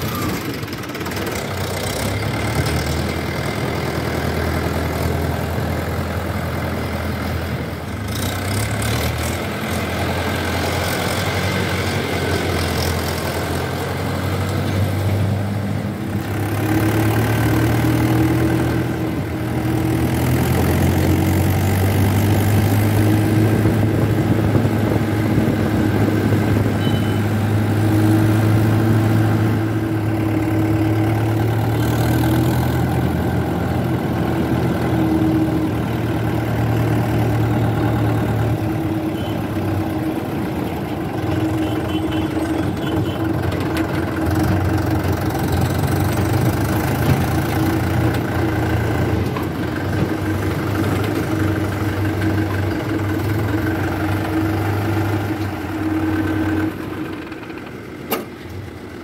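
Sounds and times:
tractor diesel engine running: 0.0 - 59.0.

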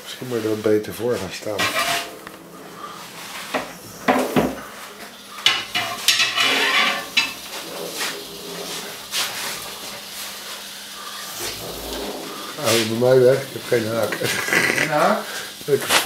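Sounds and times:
metal tongs scraping: 1.4 - 3.8, 5.4 - 9.0.

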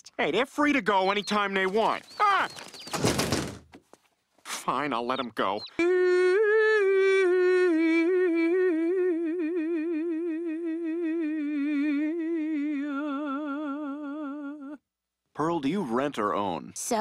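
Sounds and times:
elderly woman singing: 5.8 - 14.8.

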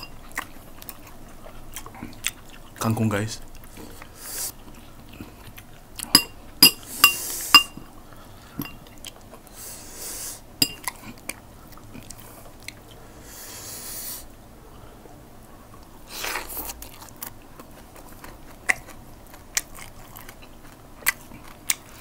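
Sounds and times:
clinks against glass bowl: 6.2 - 7.8, 8.6 - 8.8, 10.6 - 10.9.

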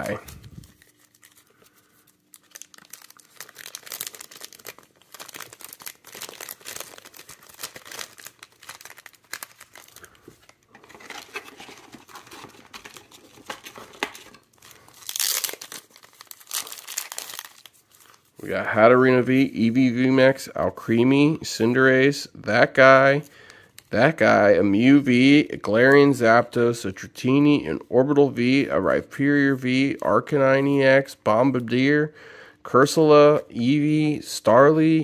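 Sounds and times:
plastic bag crinkling: 0.0 - 18.5.

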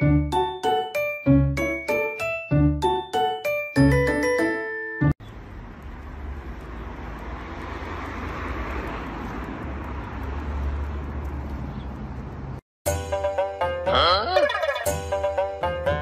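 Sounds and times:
distant road traffic: 5.2 - 12.6.

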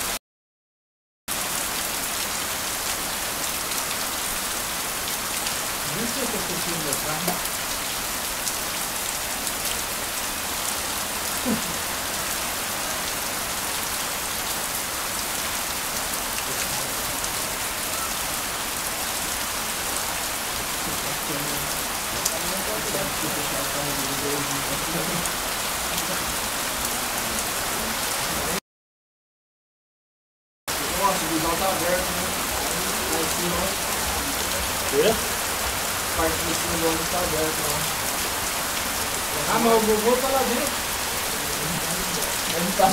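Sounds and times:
heavy rain on grass: 1.3 - 28.6, 30.7 - 42.9
faint voices: 16.5 - 18.3, 20.7 - 28.6, 30.7 - 38.0, 39.2 - 42.9.

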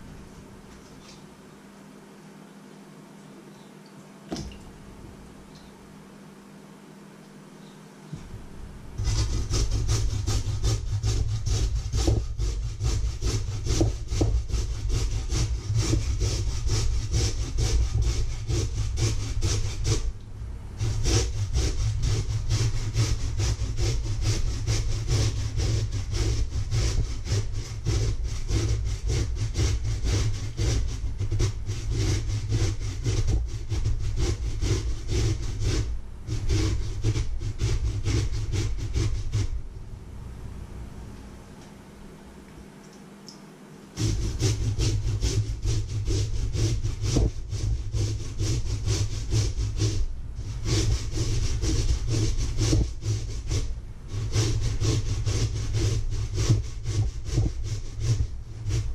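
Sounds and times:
potato grated on metal grater: 9.0 - 20.1, 20.8 - 39.6, 44.0 - 58.9.

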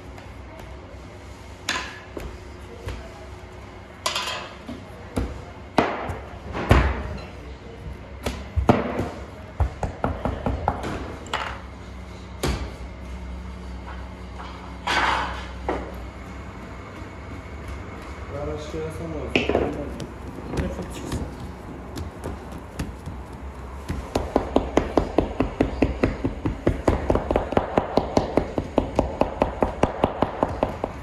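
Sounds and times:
low steady hum: 0.0 - 31.0
voices talking: 16.0 - 23.8.

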